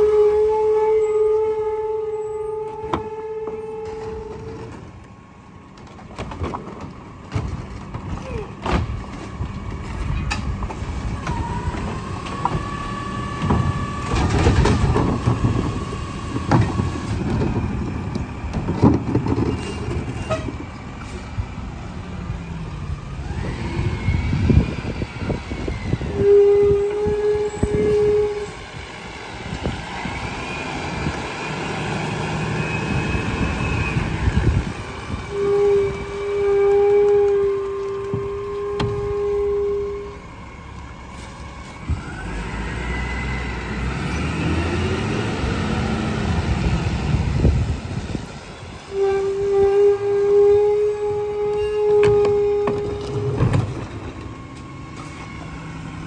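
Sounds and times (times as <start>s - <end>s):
hydraulic cart tipper whining: 0.0s - 56.0s
plastic carts knocking and banging: 13.4s - 20.7s.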